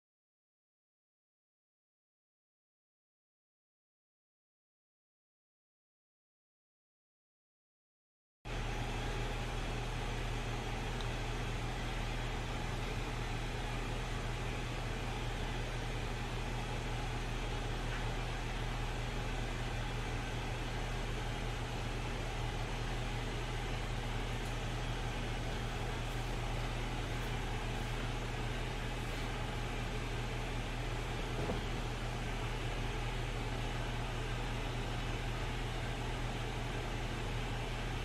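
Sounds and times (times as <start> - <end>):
steady low hum: 8.5 - 38.0.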